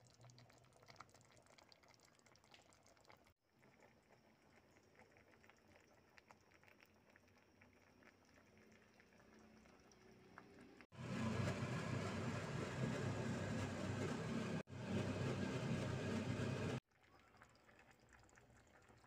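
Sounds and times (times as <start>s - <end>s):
soup bubbling: 0.0s - 12.6s.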